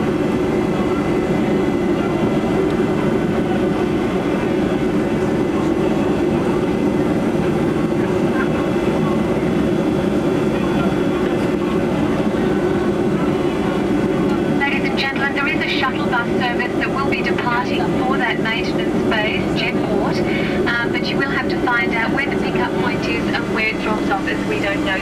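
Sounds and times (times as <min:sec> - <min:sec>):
jet engines droning in cabin: 0:00.0 - 0:25.0.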